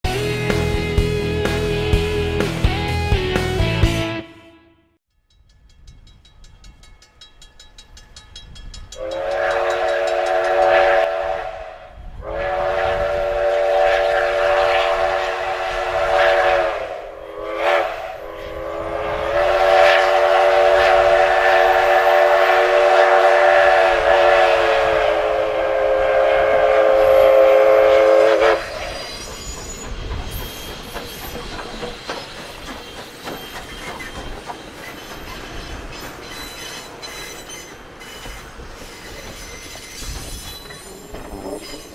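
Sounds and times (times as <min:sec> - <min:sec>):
train wheels clattering on rails: 0:05.3 - 0:11.4, 0:26.6 - 0:41.9
steam whistle blasts: 0:09.0 - 0:29.8.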